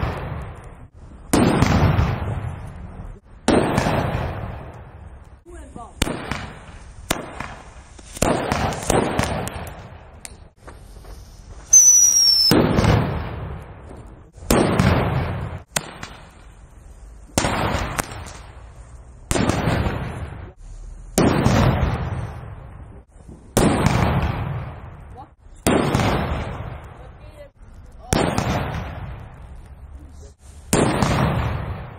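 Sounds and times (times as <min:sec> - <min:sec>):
firecrackers banging: 0:00.0 - 0:31.9
high falling whistle: 0:11.6 - 0:12.6.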